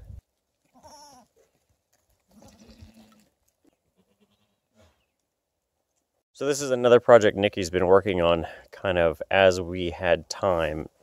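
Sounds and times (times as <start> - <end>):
goats bleating: 0.7 - 1.3, 2.3 - 3.3, 4.0 - 4.6.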